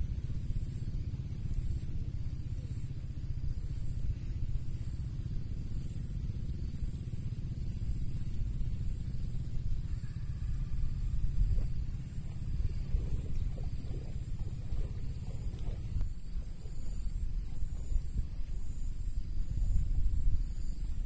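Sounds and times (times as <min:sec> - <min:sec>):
wind buffeting microphone: 0:07.7 - 0:21.0.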